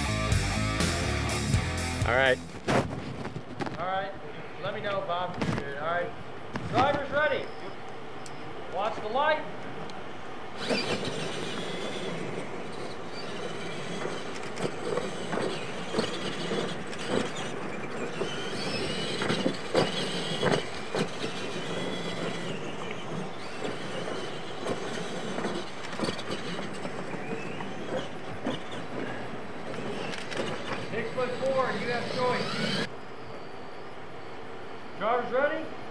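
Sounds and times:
rc truck motors whining: 9.2s - 35.2s
tyres hissing in dirt: 10.2s - 35.9s
trucks thumping on landing: 10.6s - 32.9s.

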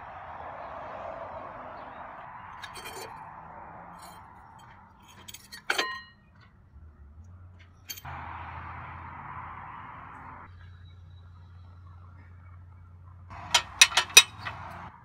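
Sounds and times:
scrap metal clinking: 2.6s - 3.2s, 4.0s - 6.2s, 13.4s - 14.9s
loud metallic clank: 13.4s - 14.8s.

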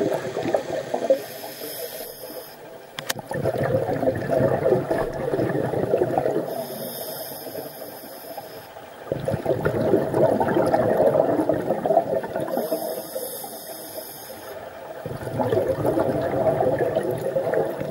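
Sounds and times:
exhaled bubbles rushing: 0.0s - 1.3s, 3.2s - 6.6s, 9.0s - 13.0s, 15.0s - 17.9s
hissing regulator inhalation: 1.0s - 2.7s, 6.5s - 8.7s, 12.5s - 14.6s
sharp click: 3.0s - 3.2s.

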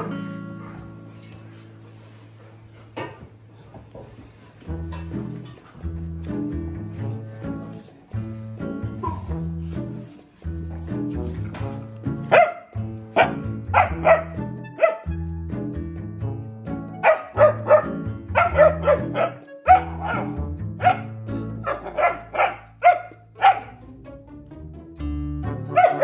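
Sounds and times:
background music with bass line: 4.6s - 26.0s
puppy barking: 9.0s - 9.3s, 12.2s - 15.2s, 17.0s - 23.8s, 25.7s - 26.0s.

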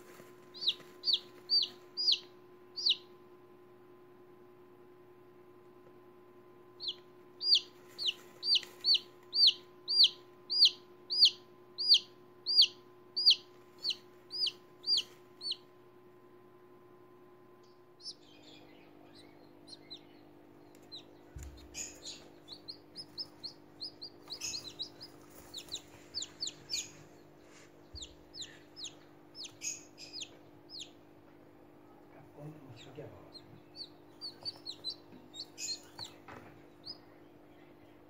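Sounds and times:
chicks peeping: 0.0s - 3.2s, 6.8s - 15.9s, 17.6s - 38.0s.

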